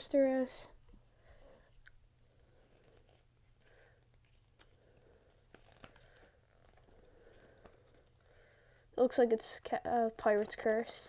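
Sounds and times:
paper rustling: 0:02.3 - 0:08.4.

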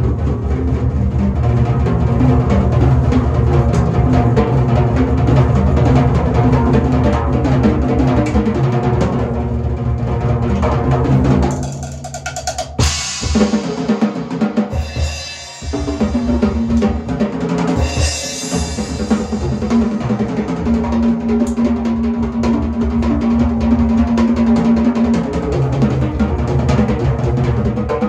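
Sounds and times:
drum kit playing: 0:00.0 - 0:28.0
cymbal crash: 0:12.8 - 0:17.2, 0:17.8 - 0:20.2.

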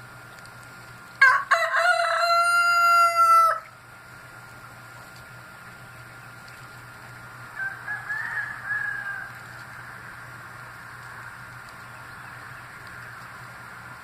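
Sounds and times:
rooster crowing: 0:01.2 - 0:03.7, 0:07.5 - 0:09.5.

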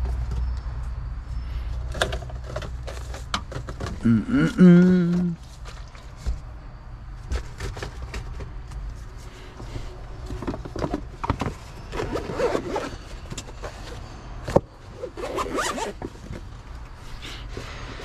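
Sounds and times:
bag zipper pulled: 0:12.0 - 0:13.0, 0:15.0 - 0:16.0.

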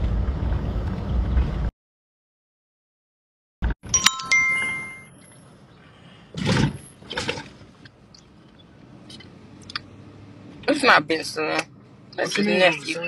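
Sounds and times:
bright electronic chime: 0:03.9 - 0:05.1.

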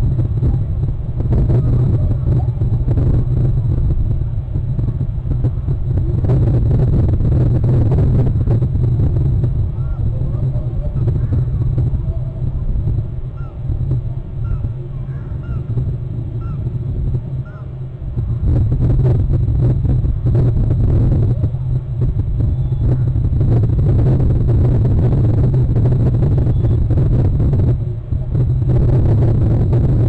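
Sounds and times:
wind buffeting microphone: 0:00.0 - 0:30.0
faint bird chirps: 0:22.5 - 0:23.1.

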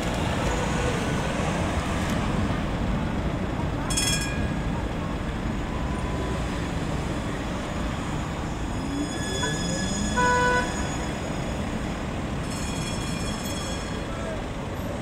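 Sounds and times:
tram running with rising whine: 0:00.0 - 0:15.0
high thin squeal: 0:08.4 - 0:11.7
tram horn toot: 0:08.5 - 0:11.3.

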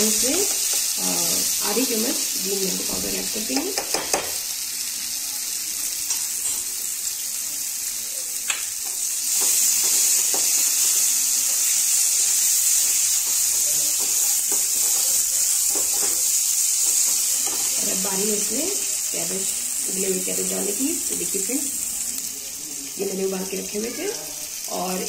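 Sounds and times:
potatoes sizzling in a frying pan: 0:00.0 - 0:25.0
utensil tapping against a pan: 0:03.6 - 0:04.4
spatula stirring in a pan: 0:08.7 - 0:19.1.

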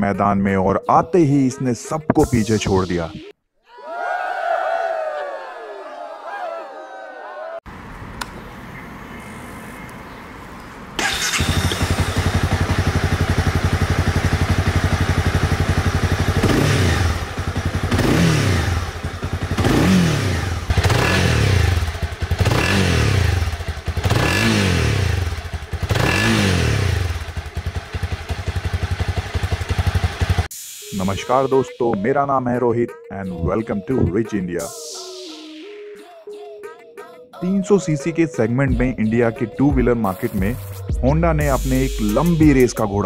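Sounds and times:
motorcycle engine idling: 0:11.0 - 0:30.5
motorcycle engine revving: 0:11.0 - 0:30.5.

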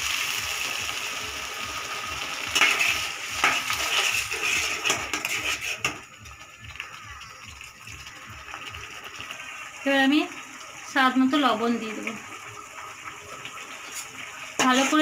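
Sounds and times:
metal spatula scraping a pan: 0:02.3 - 0:06.0, 0:13.7 - 0:15.0.

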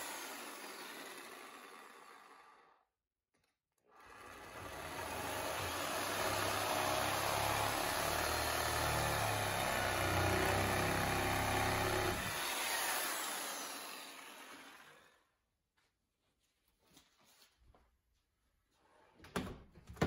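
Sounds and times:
reciprocating saw cutting: 0:00.0 - 0:02.8, 0:03.9 - 0:15.2
saw motor winding down: 0:00.0 - 0:02.8, 0:03.9 - 0:15.2.

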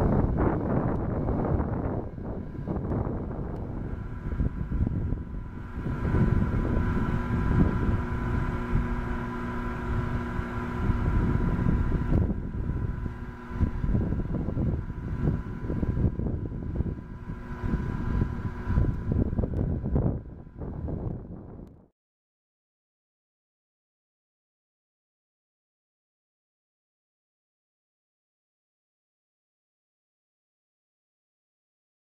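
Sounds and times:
faint steady drone: 0:00.0 - 0:21.7
wind buffeting microphone: 0:00.0 - 0:21.7.

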